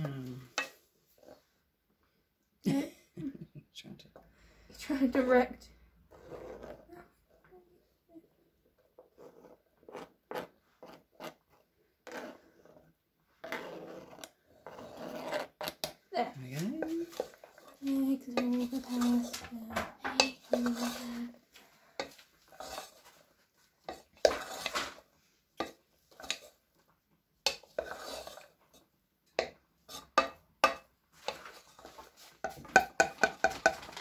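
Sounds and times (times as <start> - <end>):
wooden spoon stirring in saucepan: 0.4 - 1.6, 6.0 - 7.5, 16.7 - 34.0.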